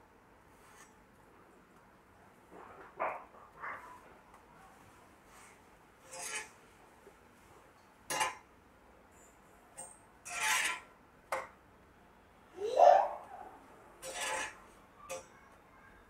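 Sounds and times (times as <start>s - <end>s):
metal spatula scraping a griddle: 0.5s - 1.0s, 5.3s - 6.6s, 8.1s - 8.5s, 9.8s - 11.5s, 14.0s - 15.3s.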